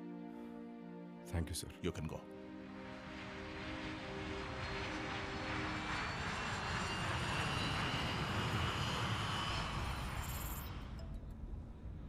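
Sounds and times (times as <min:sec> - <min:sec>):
background music: 0:00.0 - 0:08.2
airliner engines rumbling: 0:02.6 - 0:12.0.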